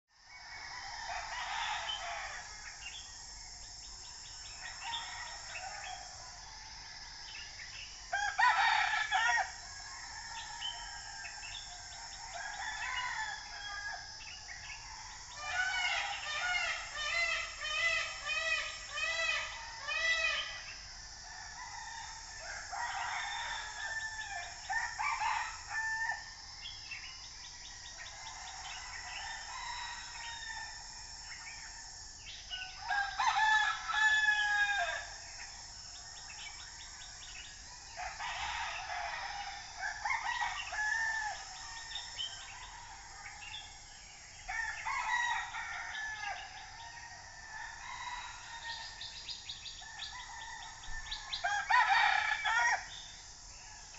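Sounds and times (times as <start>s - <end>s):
roosters crowing: 0.3s - 3.3s, 4.4s - 7.2s, 8.0s - 26.6s, 27.6s - 31.8s, 32.5s - 53.9s.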